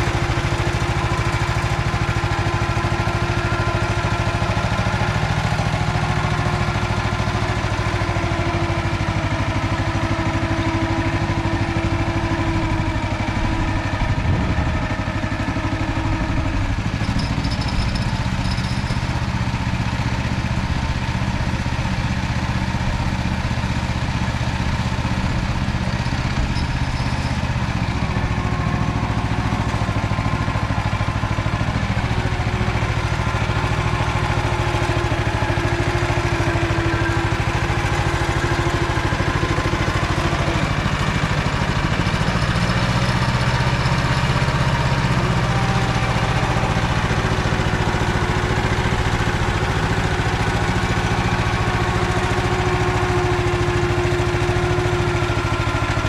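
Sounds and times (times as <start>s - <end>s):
walk-behind tractor engine running: 0.0s - 56.0s.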